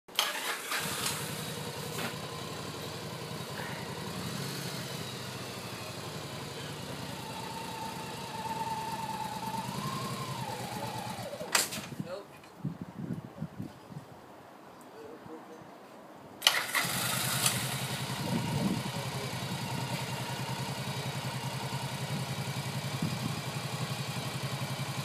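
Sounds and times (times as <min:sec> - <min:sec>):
motorcycle engine idling: 0:00.8 - 0:11.5, 0:16.8 - 0:25.0.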